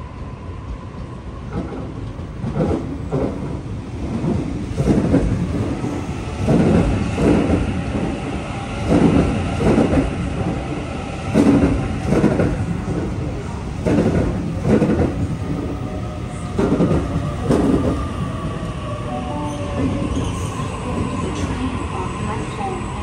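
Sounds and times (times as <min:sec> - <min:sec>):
train rolling noise: 0:00.0 - 0:23.0
train wheels knocking: 0:06.4 - 0:08.1, 0:08.8 - 0:10.1, 0:11.3 - 0:13.1, 0:13.8 - 0:15.3, 0:16.6 - 0:18.0.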